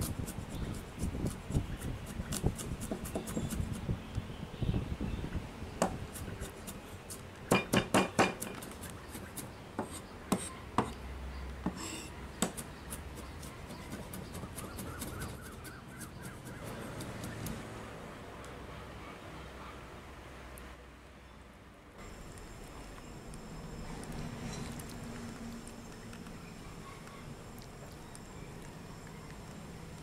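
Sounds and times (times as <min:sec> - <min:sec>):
cleaver chopping on wooden board: 0:02.3 - 0:03.7, 0:07.5 - 0:11.0, 0:11.6 - 0:13.0.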